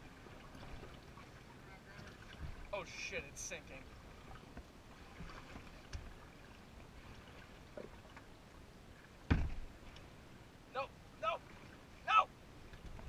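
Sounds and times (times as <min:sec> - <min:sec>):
kayak paddle strokes in water: 0:00.0 - 0:10.4, 0:11.2 - 0:13.0
loud thump: 0:09.3 - 0:09.6.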